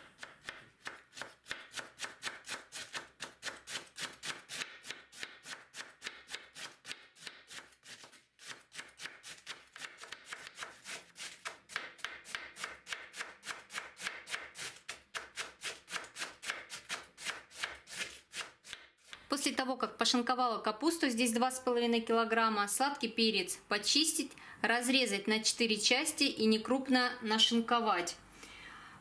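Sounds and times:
knife chopping cabbage on board: 0:00.0 - 0:18.9.

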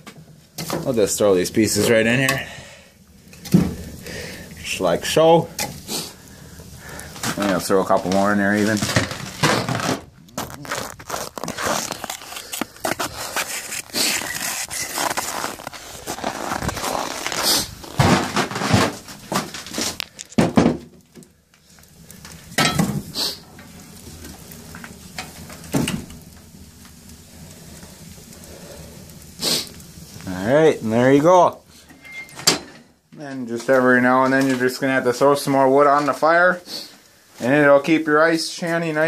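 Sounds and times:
firewood clattering and knocking: 0:00.0 - 0:01.0, 0:03.3 - 0:04.0, 0:05.5 - 0:05.9, 0:07.1 - 0:10.6, 0:17.6 - 0:27.0, 0:32.0 - 0:34.8.

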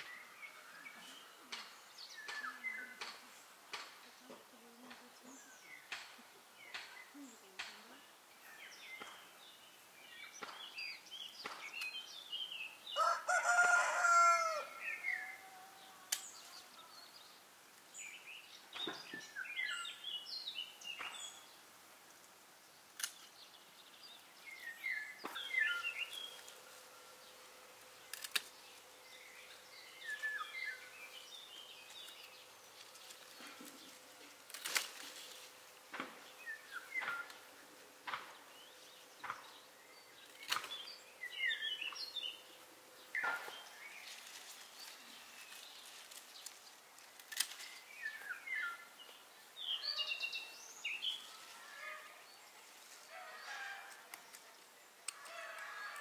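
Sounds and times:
songbirds chirping: 0:00.0 - 0:56.0
rooster crowing: 0:13.0 - 0:16.1, 0:53.1 - 0:54.0, 0:55.2 - 0:56.0
pruning shears snipping: 0:22.9 - 0:23.3, 0:27.8 - 0:28.8, 0:31.8 - 0:37.5, 0:40.2 - 0:40.9, 0:44.1 - 0:48.0.

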